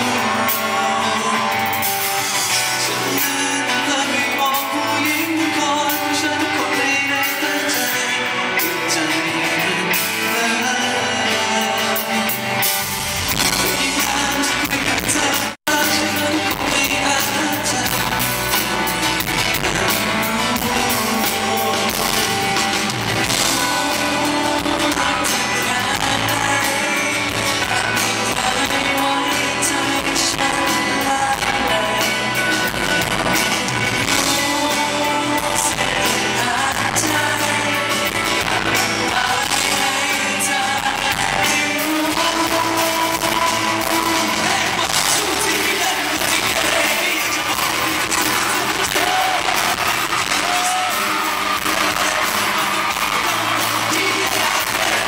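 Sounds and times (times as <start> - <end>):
man singing into microphone: 0.0 - 12.7, 13.3 - 55.0
band playing: 0.0 - 55.0
electric guitar: 0.0 - 55.0.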